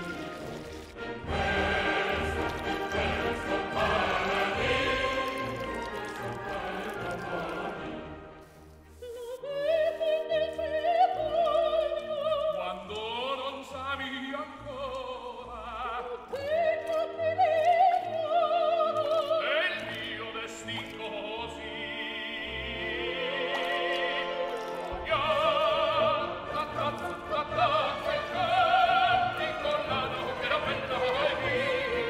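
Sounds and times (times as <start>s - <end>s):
orchestra: 0.0s - 32.0s
operatic voice singing: 1.2s - 8.2s, 9.1s - 32.0s.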